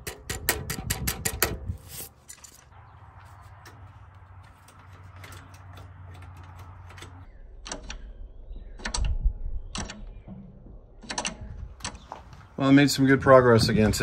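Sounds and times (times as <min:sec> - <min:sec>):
metal linkage clacking: 0:00.0 - 0:02.7, 0:03.5 - 0:08.1, 0:11.0 - 0:12.1.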